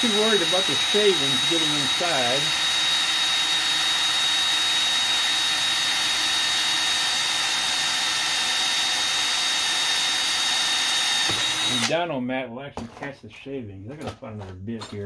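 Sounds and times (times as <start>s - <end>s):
power drill boring through metal: 0.0s - 12.0s.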